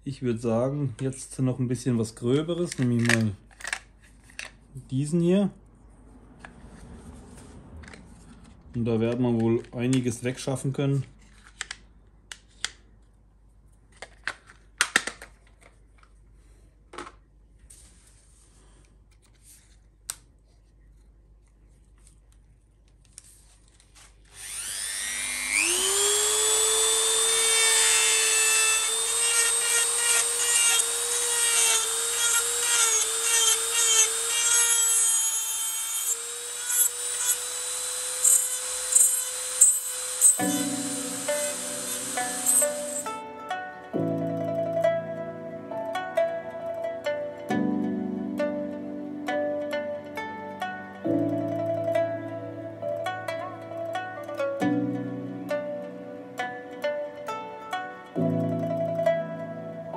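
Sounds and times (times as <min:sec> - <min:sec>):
rotary tool whining: 0:24.3 - 0:43.1
carving bit grinding wood: 0:24.4 - 0:43.1.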